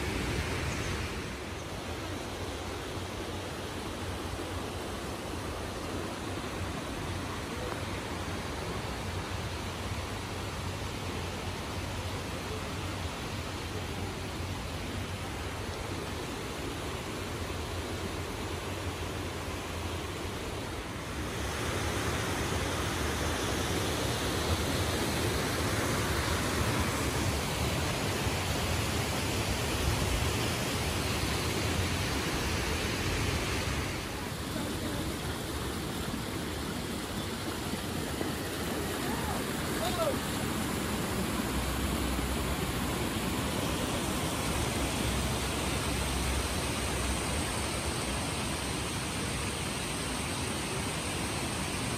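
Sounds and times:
stream rushing over rocks: 0.0s - 51.9s.

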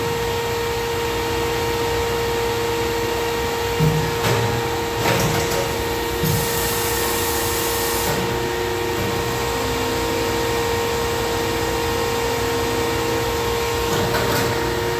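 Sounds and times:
hydraulic unit whine and hum: 0.0s - 14.9s
air venting hiss: 6.2s - 8.4s.

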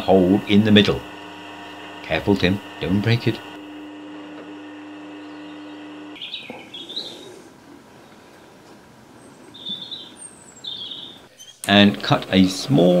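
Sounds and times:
drill press motor hum: 0.0s - 6.2s.

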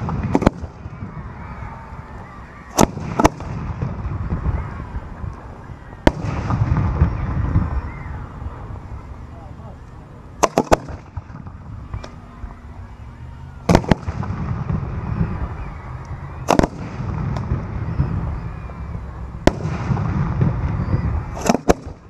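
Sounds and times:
fireworks bursting with sharp bangs: 0.0s - 22.0s
low rumble: 0.0s - 22.0s.

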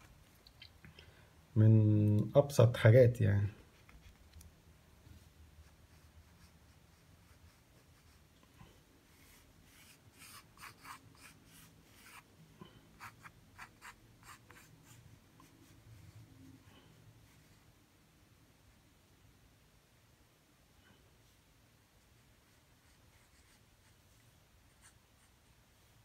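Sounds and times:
pencil scratching on paper: 5.6s - 8.3s, 9.1s - 12.3s, 12.9s - 16.2s, 22.4s - 25.3s.

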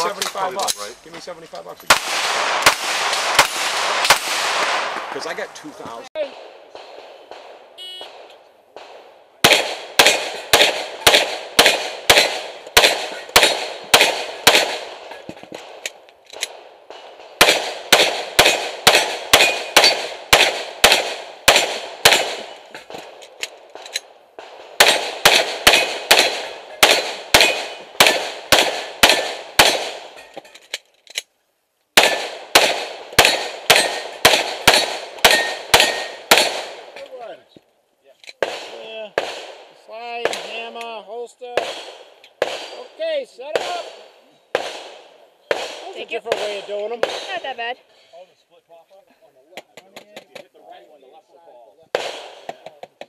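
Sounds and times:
pistol shots hitting steel targets: 6.8s - 30.4s, 32.0s - 37.0s, 41.5s - 42.9s.

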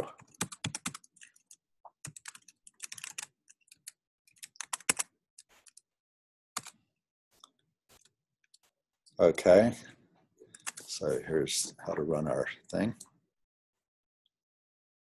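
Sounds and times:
keyboard typing: 0.1s - 5.8s, 6.6s - 6.8s, 10.5s - 10.9s.

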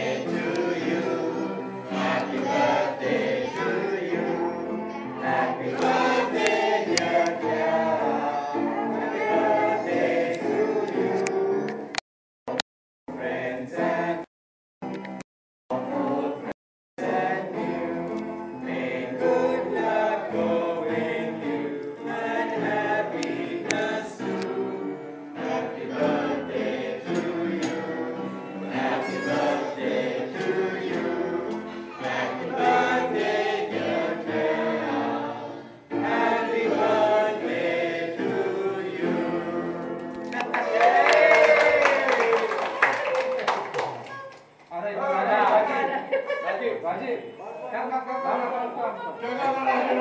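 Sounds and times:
group singing birthday song: 0.0s - 14.3s, 15.7s - 40.4s.

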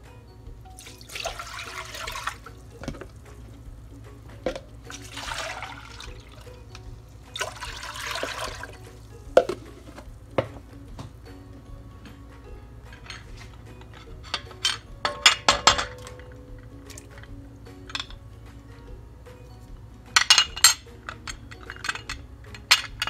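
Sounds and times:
water pouring into metal pot: 0.7s - 10.1s, 15.8s - 17.8s.

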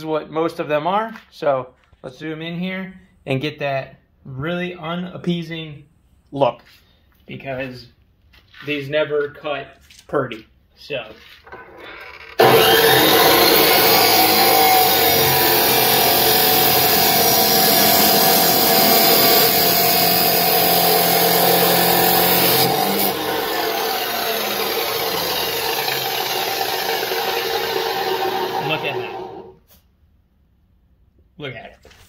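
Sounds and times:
chop saw grinding steel: 11.5s - 29.6s.

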